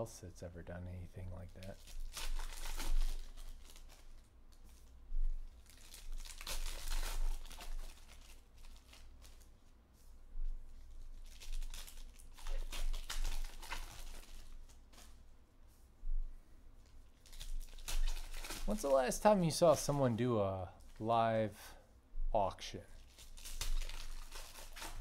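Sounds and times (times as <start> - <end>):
card wrappers tearing and crinkling: 1.3 - 5.0, 5.6 - 9.5, 11.1 - 15.2, 17.1 - 21.1, 22.7 - 25.0.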